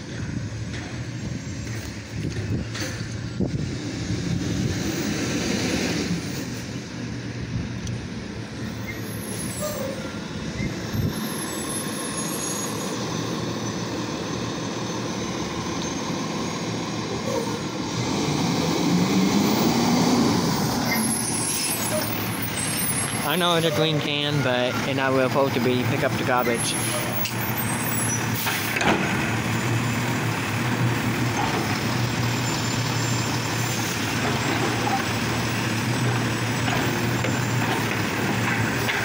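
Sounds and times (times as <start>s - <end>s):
garbage truck engine running: 6.3s - 39.0s.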